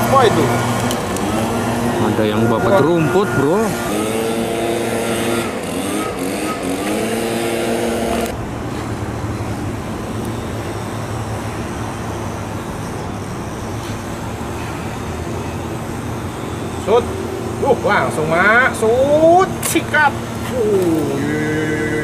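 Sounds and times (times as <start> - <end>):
brush cutter running: 0.0 - 8.4, 16.8 - 22.0.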